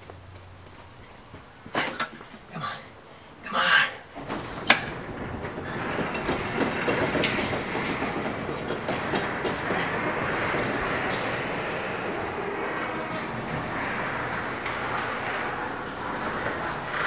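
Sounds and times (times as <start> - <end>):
garage door rolling up: 4.0 - 17.0.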